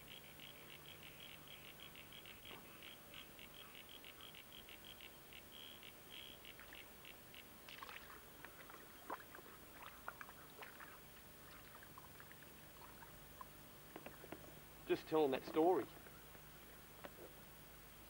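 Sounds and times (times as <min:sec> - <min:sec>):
river water splashing: 0:07.7 - 0:13.9.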